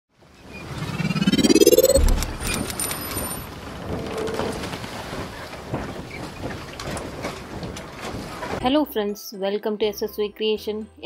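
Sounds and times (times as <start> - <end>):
rising whoosh: 0.6 - 3.0
low boom: 1.0 - 2.8.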